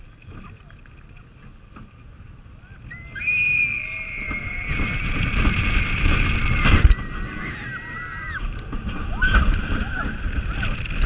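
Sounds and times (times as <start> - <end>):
roller coaster wheel rumble: 0.0 - 11.0
wind on microphone: 0.0 - 11.0
riders screaming: 2.6 - 11.0.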